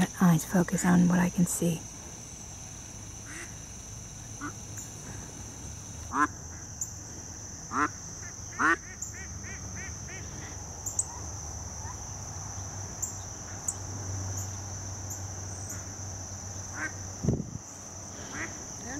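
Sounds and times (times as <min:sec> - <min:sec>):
high insect drone: 0:00.0 - 0:18.9
ducks quacking: 0:03.3 - 0:03.5, 0:06.1 - 0:06.3, 0:07.7 - 0:11.2, 0:18.2 - 0:18.6.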